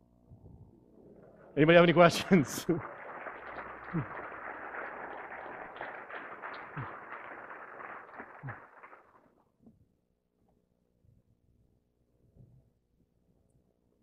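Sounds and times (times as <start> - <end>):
audience applauding: 1.2 - 9.4.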